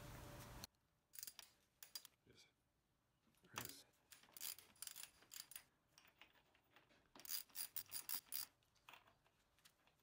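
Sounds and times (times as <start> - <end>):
ratchet wrench clicking: 7.2 - 8.5.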